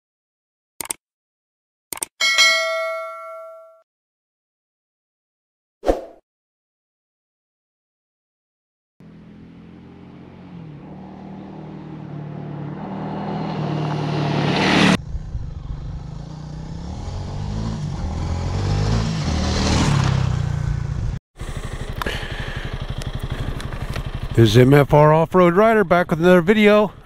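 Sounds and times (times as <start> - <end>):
motorcycle engine passing on gravel: 18.4 - 20.8, 21.4 - 25.2.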